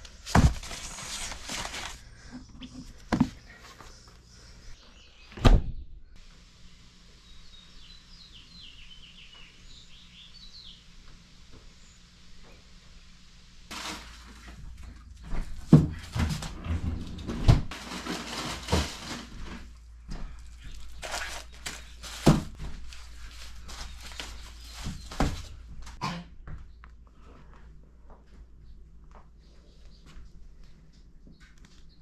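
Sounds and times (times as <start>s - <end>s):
packages rustling: 0.0s - 2.2s, 13.7s - 16.6s, 17.7s - 26.0s
heavy thuds of packages: 0.2s - 2.0s, 17.6s - 25.6s.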